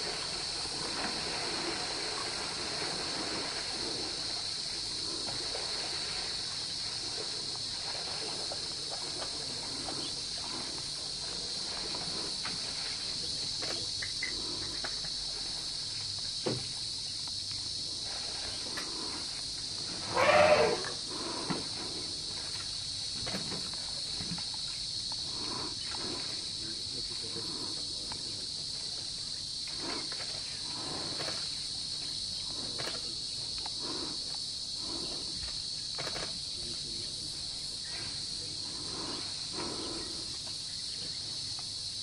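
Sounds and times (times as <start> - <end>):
insects droning: 0.0 - 42.0
elephant call: 20.0 - 21.6.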